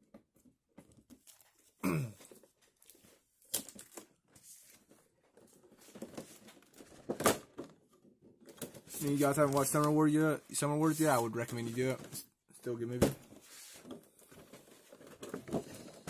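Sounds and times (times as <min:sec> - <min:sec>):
plastic packaging crinkling: 0:08.8 - 0:12.0.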